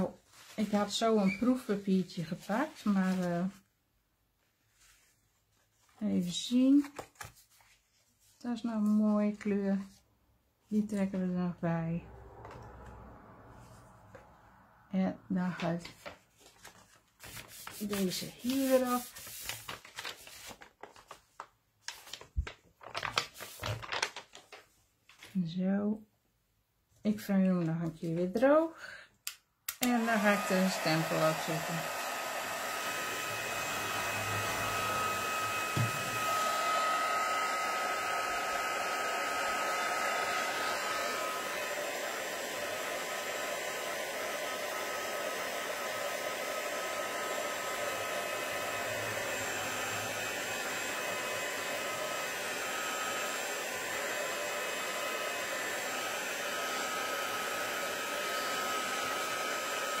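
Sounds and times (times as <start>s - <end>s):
heat gun blowing with fan whine: 29.7s - 60.0s.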